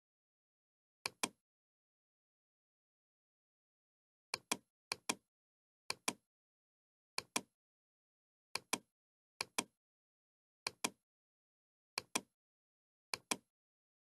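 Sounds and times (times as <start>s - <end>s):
computer mouse clicks: 1.1s - 1.4s, 4.4s - 5.2s, 5.9s - 6.2s, 7.2s - 7.5s, 8.6s - 9.7s, 10.7s - 11.0s, 12.0s - 12.3s, 13.1s - 13.5s.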